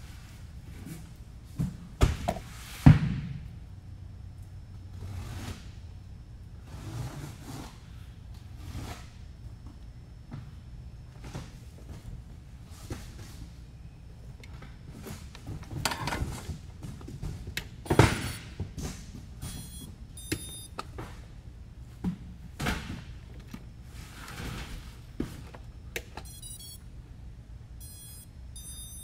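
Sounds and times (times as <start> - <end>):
short high electronic beeps: 19.4 - 20.7, 26.2 - 26.8, 27.8 - 29.0.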